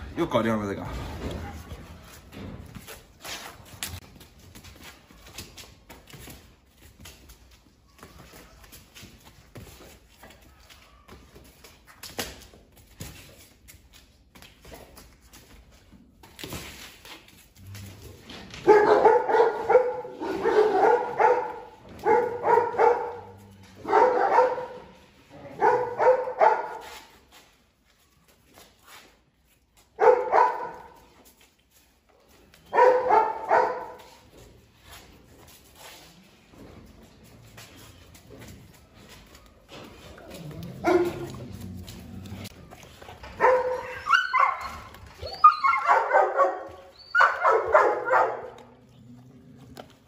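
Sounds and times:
dog yelping barks: 0:18.6 - 0:24.9, 0:25.5 - 0:26.8, 0:30.0 - 0:31.0, 0:32.7 - 0:34.0, 0:43.4 - 0:48.6.

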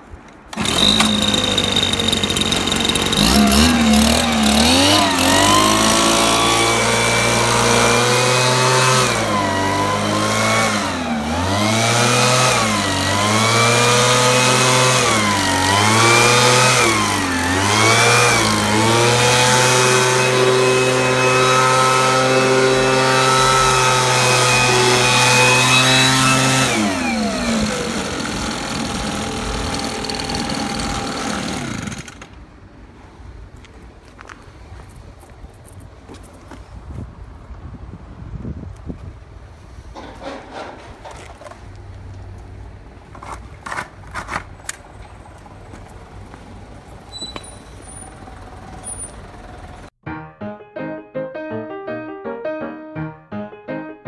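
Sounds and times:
leaf blower engine revving: 0:00.5 - 0:32.4.

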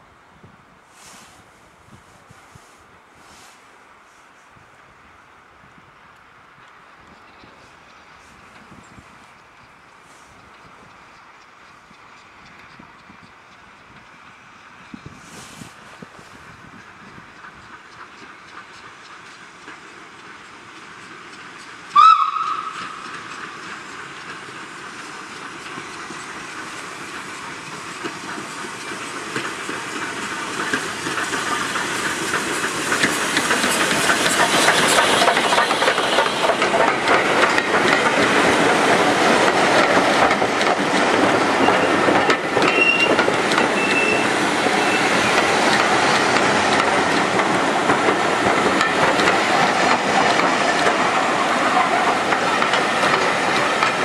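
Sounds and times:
steam train hissing and running: 0:00.8 - 0:05.4, 0:06.5 - 0:54.0
steam locomotive whistle: 0:21.9 - 0:23.0, 0:42.6 - 0:43.2, 0:43.8 - 0:45.2.

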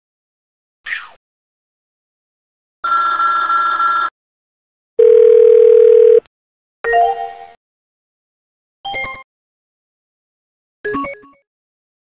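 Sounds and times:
warbling telephone tone: 0:05.0 - 0:06.2.

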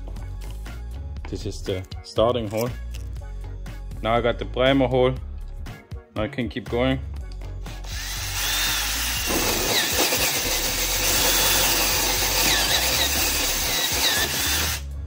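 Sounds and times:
drill hole saw cutting plastic: 0:07.8 - 0:14.9.

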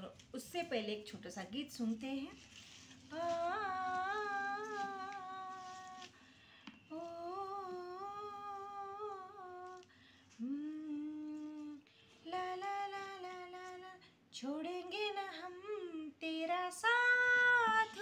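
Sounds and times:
woman humming a melody: 0:10.4 - 0:11.8.

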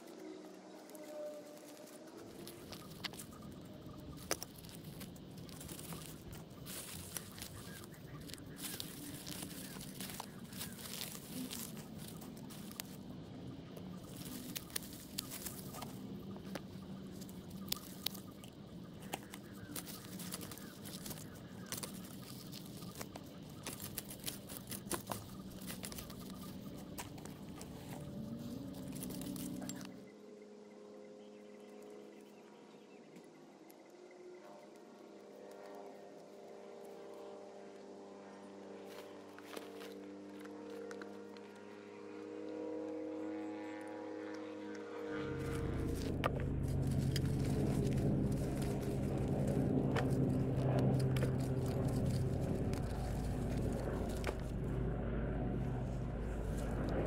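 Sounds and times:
plants and soil being pulled: 0:00.0 - 0:30.0, 0:45.3 - 0:57.0
low hum: 0:00.0 - 0:57.0.

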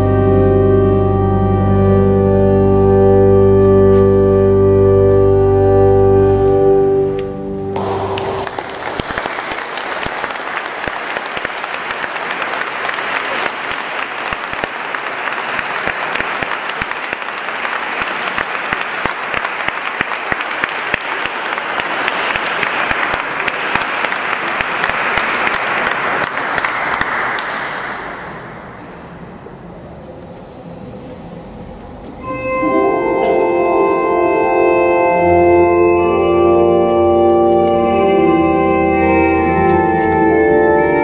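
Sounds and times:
organ chord: 0:00.0 - 0:09.5, 0:32.2 - 0:41.0
audience applauding: 0:07.8 - 0:28.5.

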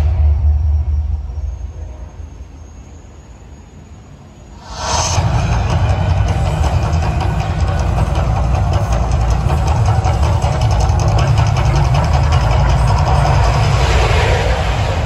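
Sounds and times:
deep rumbling roar of fire jets: 0:04.5 - 0:06.7, 0:12.9 - 0:15.0.

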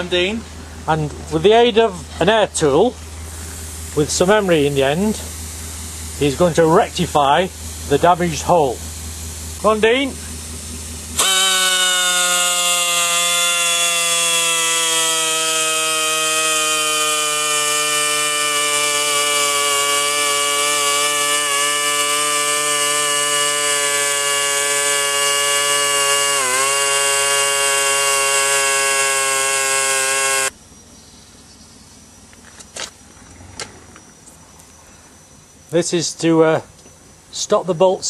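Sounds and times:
air tool whine: 0:01.4 - 0:30.6.

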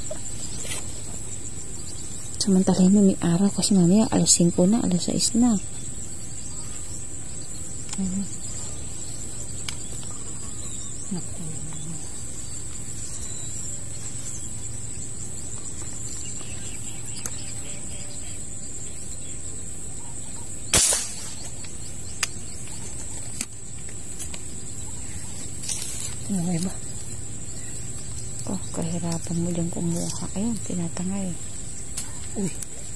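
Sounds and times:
insect trill: 0:00.0 - 0:32.9
faint clicks: 0:09.6 - 0:10.2
air rifle shot: 0:20.7 - 0:21.5.

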